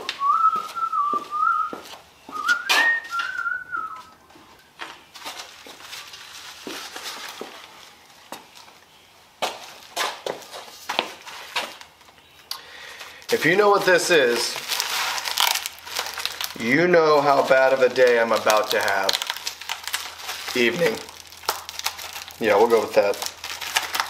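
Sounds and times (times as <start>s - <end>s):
man whistling a tune: 0.0s - 4.2s
footsteps: 0.0s - 8.8s, 9.4s - 12.1s
plastic wrapping rustling: 0.2s - 24.0s.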